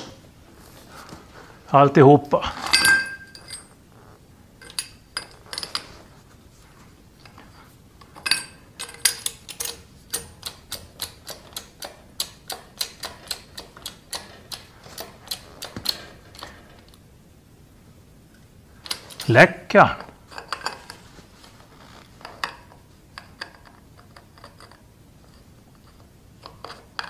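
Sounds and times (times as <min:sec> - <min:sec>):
jack handle clicking and rattling: 0:08.0 - 0:16.7.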